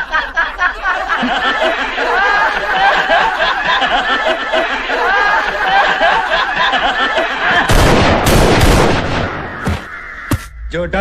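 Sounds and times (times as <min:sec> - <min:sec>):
men laughing: 0:00.0 - 0:07.8
gunshot with ringing echo: 0:07.7 - 0:09.5.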